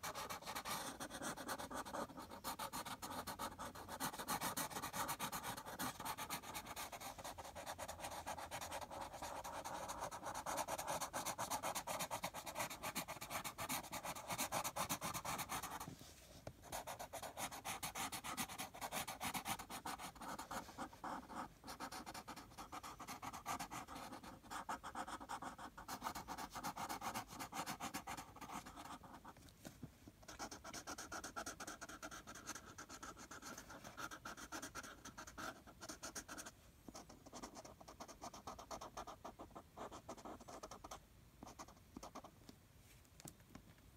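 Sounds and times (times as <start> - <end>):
marker scribbling on paper: 0.0 - 15.9, 16.6 - 29.4.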